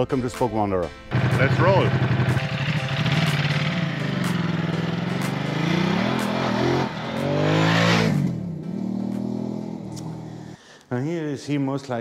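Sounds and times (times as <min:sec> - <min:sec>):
motorcycle engine accelerating: 0:01.1 - 0:10.6.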